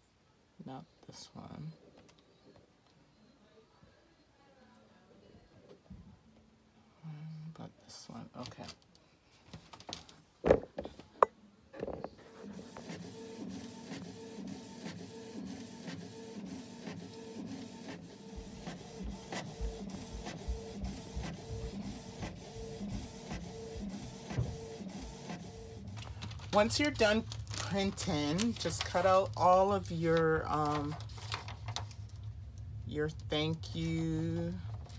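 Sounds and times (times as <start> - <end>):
printer carriage moving back and forth: 12.2 - 31.9.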